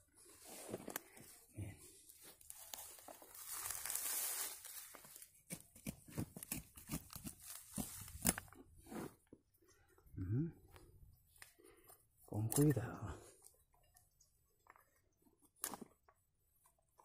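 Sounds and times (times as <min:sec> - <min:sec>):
pine needles rustling and crackling: 0:00.3 - 0:05.3, 0:06.4 - 0:08.5.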